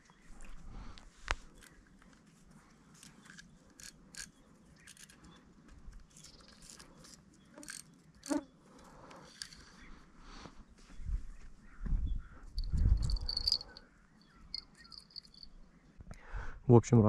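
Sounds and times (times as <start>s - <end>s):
faint clicks and rustles: 0.0s - 11.8s, 12.5s - 13.9s.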